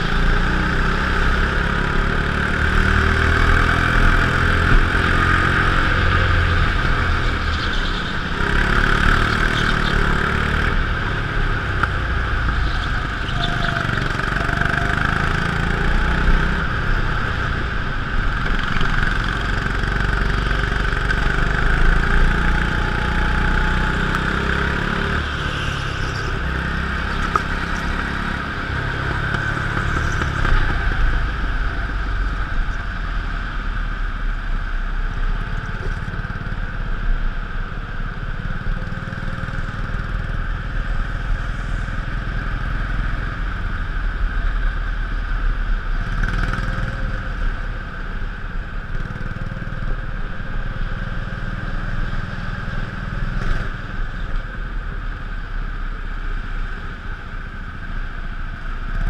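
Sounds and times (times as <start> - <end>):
go-kart engine running: 0.0 - 33.0.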